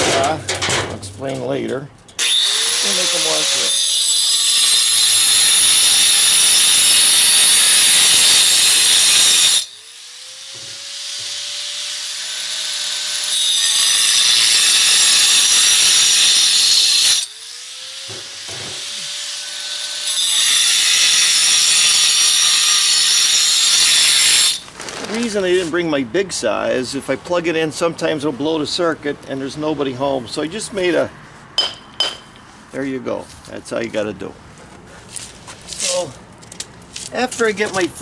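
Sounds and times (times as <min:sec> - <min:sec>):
angle grinder cutting concrete: 0:02.2 - 0:24.6.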